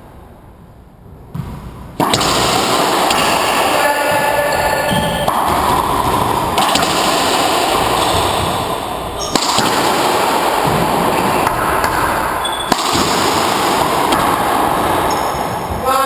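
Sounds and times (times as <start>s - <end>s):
steady background noise: 0.0s - 16.0s
racquetball cracks off walls: 1.3s - 15.5s.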